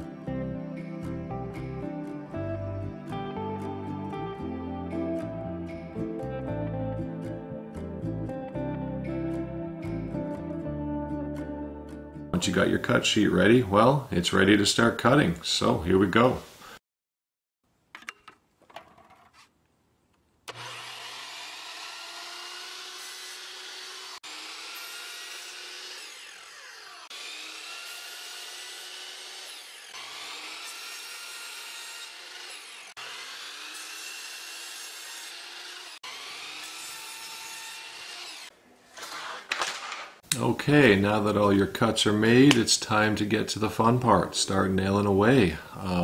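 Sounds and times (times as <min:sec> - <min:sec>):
miter saw whining while cutting: 0:20.5 - 0:38.5.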